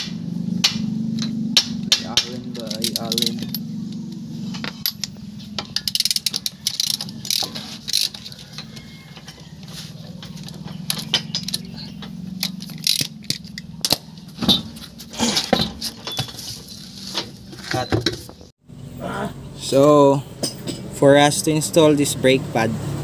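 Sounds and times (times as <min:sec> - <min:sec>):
steady low hum: 0:00.0 - 0:09.2
lug nuts clinking and rattling: 0:00.6 - 0:18.5.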